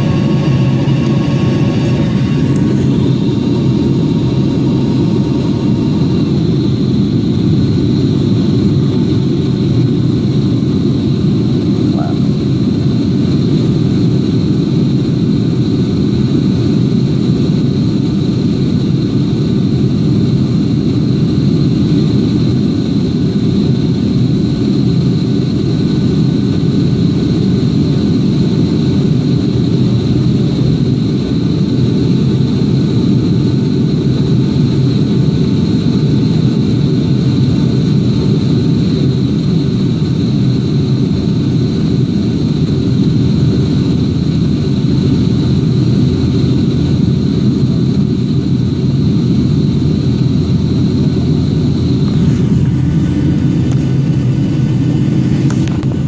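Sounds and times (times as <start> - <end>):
faint high whine: 0.0 - 13.2, 33.6 - 56.0
jet engines and airflow rushing: 0.0 - 56.0.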